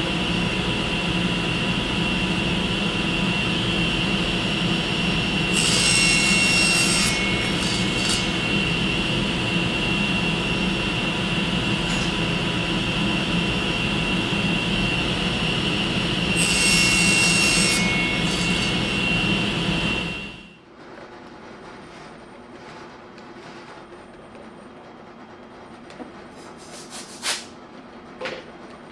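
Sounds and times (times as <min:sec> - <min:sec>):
table saw blade whining: 0:02.0 - 0:20.6
saw cutting wood: 0:05.2 - 0:09.3, 0:15.8 - 0:20.2.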